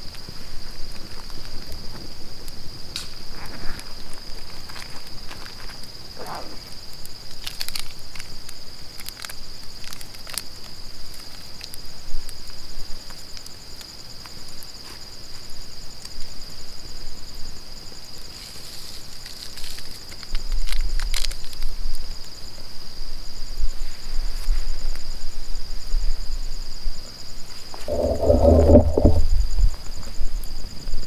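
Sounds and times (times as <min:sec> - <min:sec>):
campfire crackling: 0:00.0 - 0:22.4, 0:27.3 - 0:30.6
night insects trilling: 0:00.0 - 0:31.0
twigs rustling: 0:18.4 - 0:21.6, 0:27.5 - 0:29.4.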